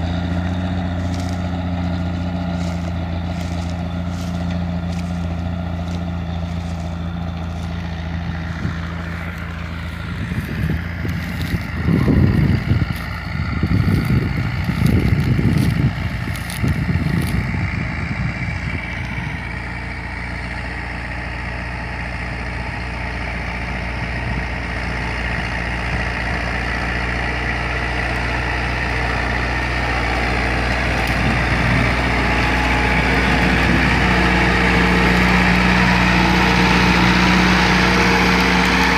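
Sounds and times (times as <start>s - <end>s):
wind rumble on microphone: 0.0s - 20.0s, 23.4s - 27.0s, 29.2s - 36.2s
tractor engines droning: 0.0s - 38.9s.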